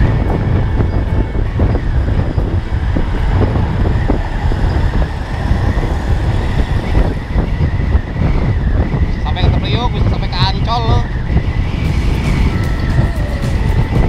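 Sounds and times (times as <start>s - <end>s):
scooter engine: 0.0s - 8.7s, 11.8s - 14.0s
passing road traffic: 0.0s - 14.0s
wind rumble on microphone: 0.0s - 14.0s.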